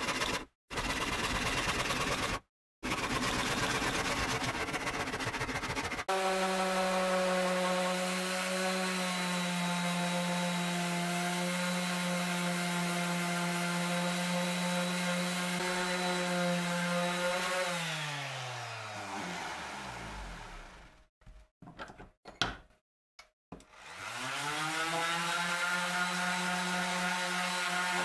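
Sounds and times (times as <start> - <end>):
orbital sander on wood: 2.9 - 21.0, 23.8 - 28.0.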